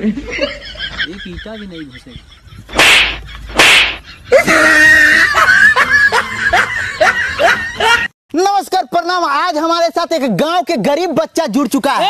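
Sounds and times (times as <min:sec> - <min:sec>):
swishing hits: 0:02.7 - 0:04.0.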